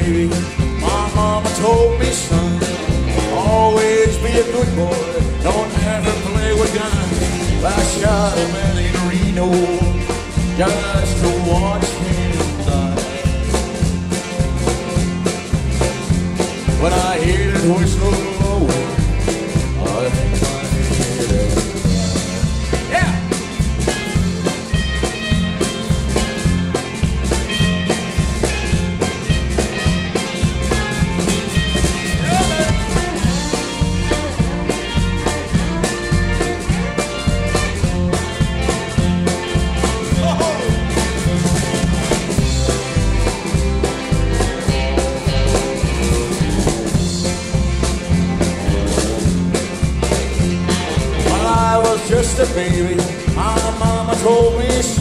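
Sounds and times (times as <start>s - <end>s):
rock band playing: 0.0s - 55.0s.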